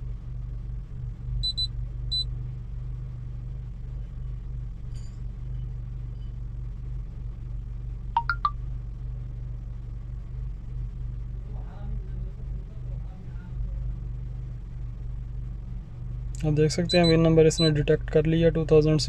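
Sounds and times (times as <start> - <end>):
short high-pitched beeps: 8.2 - 8.5, 16.9 - 17.7
three-note notification chime: 8.2 - 8.5.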